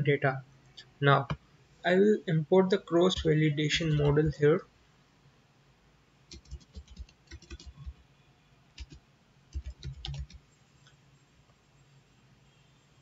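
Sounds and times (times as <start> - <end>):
typing on computer keyboard: 3.2 - 4.4, 6.3 - 8.0, 8.8 - 10.4.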